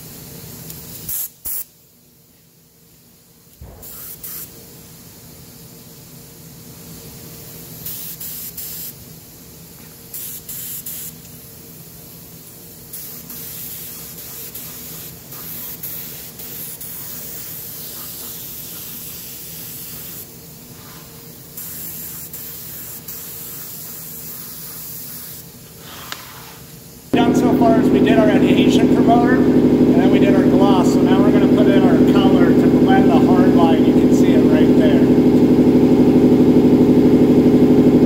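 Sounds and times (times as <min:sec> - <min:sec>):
spray gun hissing: 0:03.6 - 0:05.6, 0:06.4 - 0:35.3
low hum: 0:27.1 - 0:38.0.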